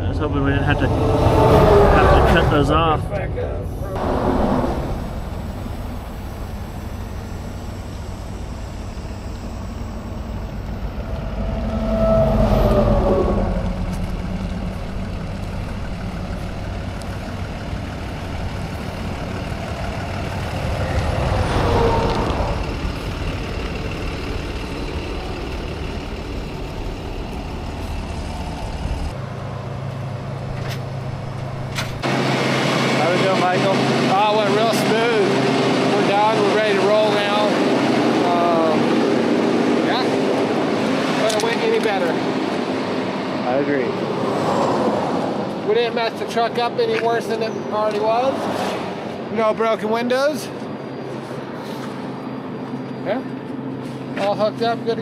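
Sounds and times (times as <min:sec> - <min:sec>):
diesel truck engine idling: 0:00.0 - 0:43.4
highway traffic passing: 0:00.0 - 0:55.0.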